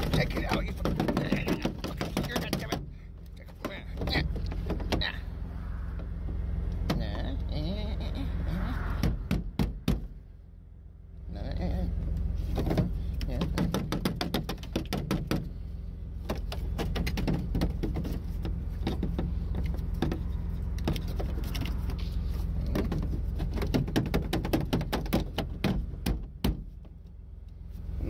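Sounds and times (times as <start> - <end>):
hand knocking plastic panel: 0.0 - 5.1, 9.0 - 10.1, 12.6 - 15.5, 16.2 - 21.4, 22.6 - 26.9
excavator engine running: 0.0 - 28.0.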